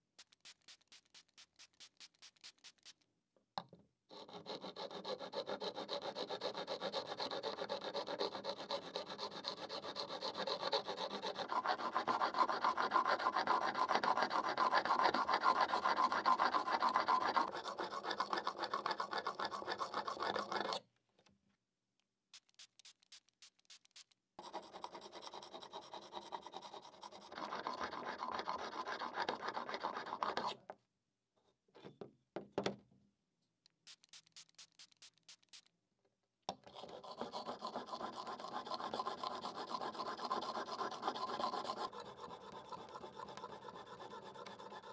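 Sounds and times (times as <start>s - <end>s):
chisel scraping on sharpening stone: 15.2s - 20.8s, 24.4s - 30.6s, 36.6s - 44.9s.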